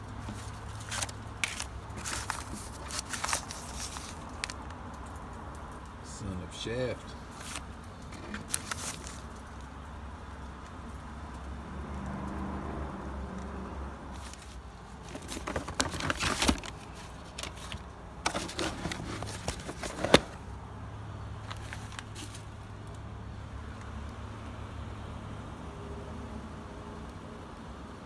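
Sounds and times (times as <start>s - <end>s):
vinyl records clicking and clattering: 0.0s - 5.9s, 7.3s - 9.5s, 14.2s - 20.5s.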